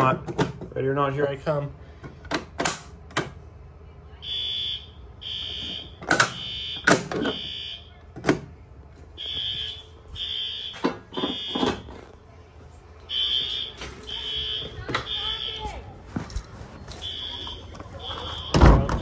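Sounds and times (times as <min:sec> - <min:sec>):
fire alarm horn blasts: 0:04.2 - 0:08.0, 0:09.2 - 0:11.9, 0:13.1 - 0:15.8, 0:16.9 - 0:19.0.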